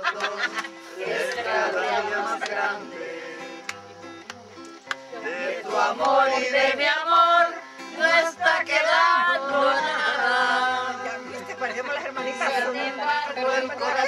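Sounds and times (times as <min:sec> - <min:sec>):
acoustic guitar: 0:00.0 - 0:14.0
group of people singing: 0:00.0 - 0:14.0.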